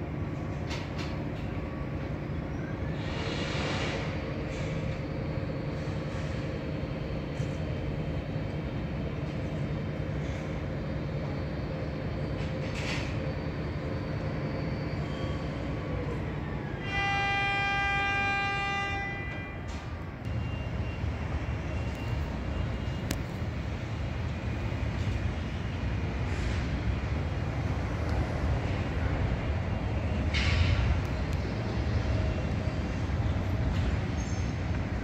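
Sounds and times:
loud horn blast: 0:16.8 - 0:20.1.

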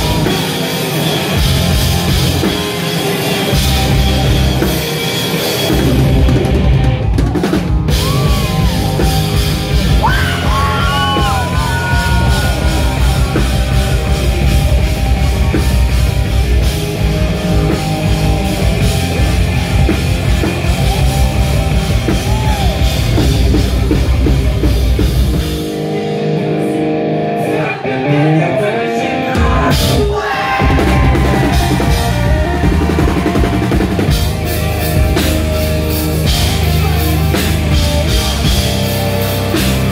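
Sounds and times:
distorted electric guitars: 0:00.0 - 0:39.9
sung vocals: 0:26.3 - 0:34.1.

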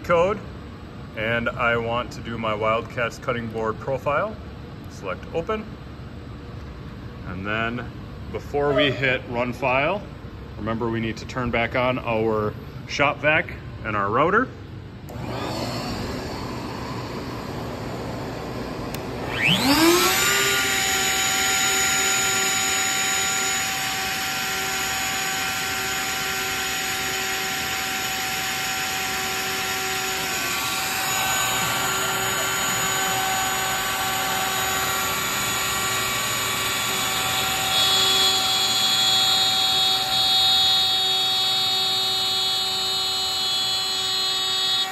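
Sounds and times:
higher-pitched whining tones: 0:15.1 - 0:44.9
router high whine: 0:15.1 - 0:44.9
shop vacuum rushing: 0:15.1 - 0:44.9.

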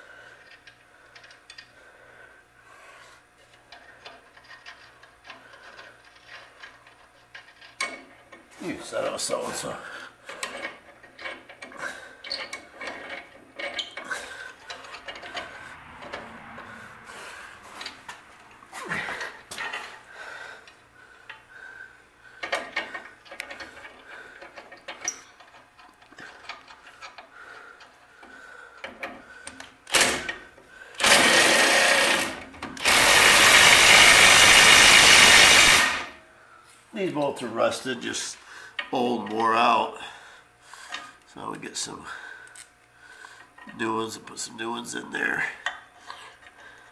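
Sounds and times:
cordless impact driver running: 0:31.0 - 0:36.2.

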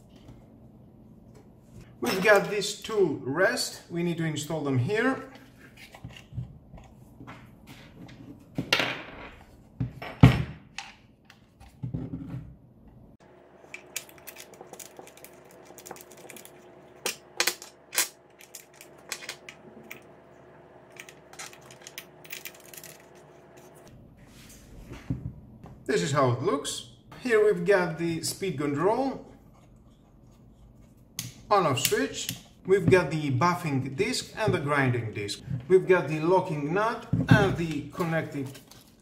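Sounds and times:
small parts clicking and knocking: 0:13.7 - 0:20.1, 0:20.9 - 0:23.2.

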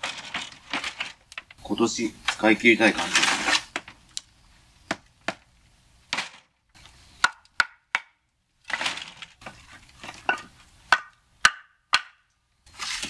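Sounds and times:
logs rustling and scraping: 0:00.0 - 0:07.5, 0:08.6 - 0:11.1, 0:12.6 - 0:13.0
firewood knocking together: 0:04.9 - 0:05.5, 0:07.2 - 0:12.2.

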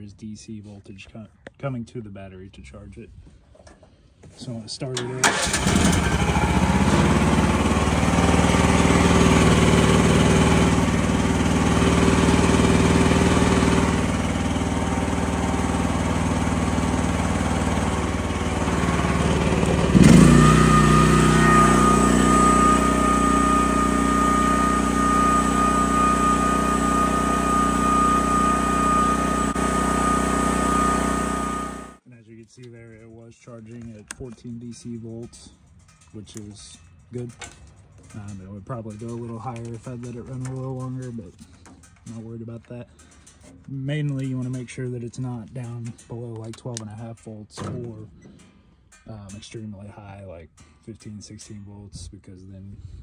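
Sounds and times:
excavator engine running: 0:05.1 - 0:32.0
steady high whine: 0:18.1 - 0:32.0.

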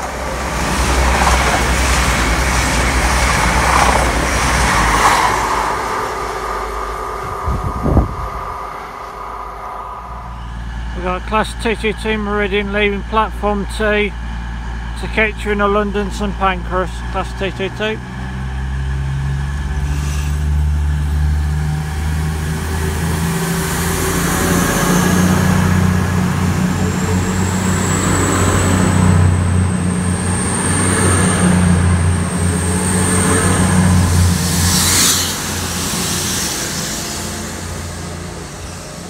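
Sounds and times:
diesel train engines: 0:00.0 - 0:39.0
faint high whine: 0:04.8 - 0:13.4.

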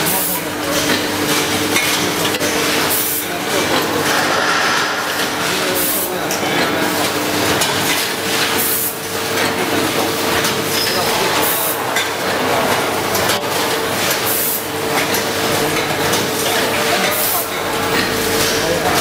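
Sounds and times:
packing machine clatter and hum: 0:00.0 - 0:19.0.

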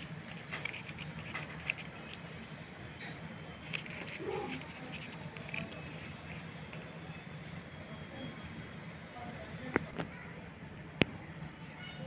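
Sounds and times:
paper clicks and rustles: 0:00.0 - 0:02.5, 0:03.6 - 0:06.9
steady low hum: 0:00.0 - 0:11.6.

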